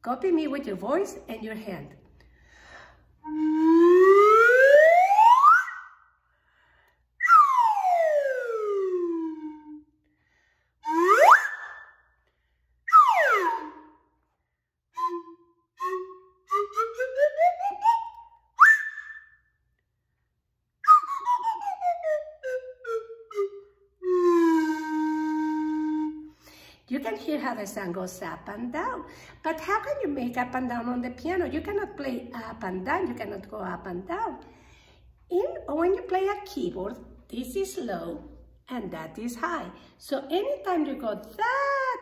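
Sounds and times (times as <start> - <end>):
slide whistle glide: 3.2 - 6.1, 7.2 - 9.9, 10.8 - 12.1, 12.9 - 14.1, 15.0 - 19.6, 20.8 - 26.4.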